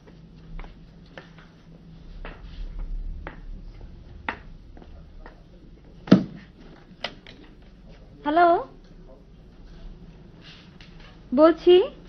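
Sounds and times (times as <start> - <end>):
footsteps on hard floor: 0.0 - 7.0
low steady hum: 0.0 - 12.0.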